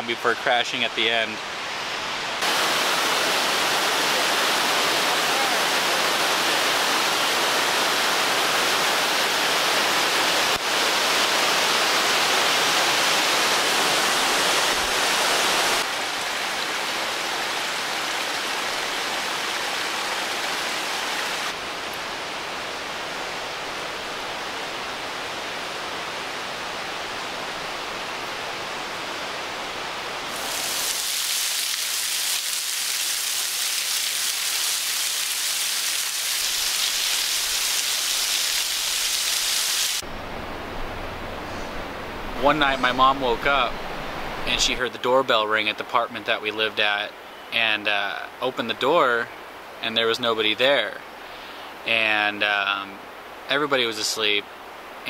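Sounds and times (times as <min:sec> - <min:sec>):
waterfall rushing over rocks: 0:00.5 - 0:40.0
water spattering like rain: 0:30.2 - 0:40.0.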